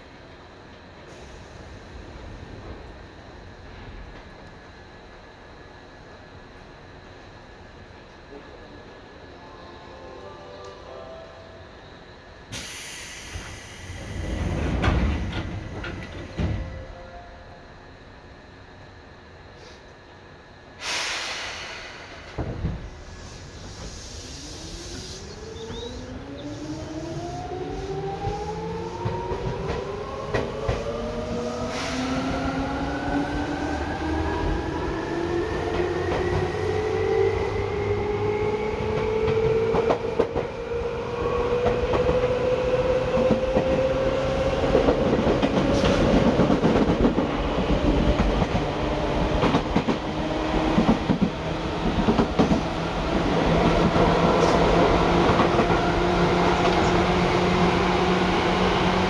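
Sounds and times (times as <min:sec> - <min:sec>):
rail-joint clicks: 0:14.5 - 0:16.8.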